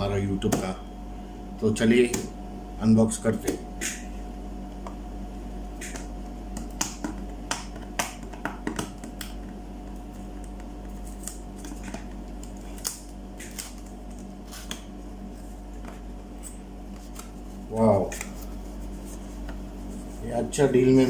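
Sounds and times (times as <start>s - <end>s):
steady hum: 0.0s - 21.0s.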